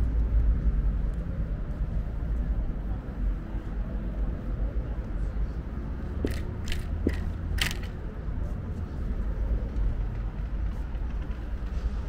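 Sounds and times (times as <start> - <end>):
wind and road rumble: 0.0 - 12.0
bicycle mechanical clicks: 6.2 - 8.0.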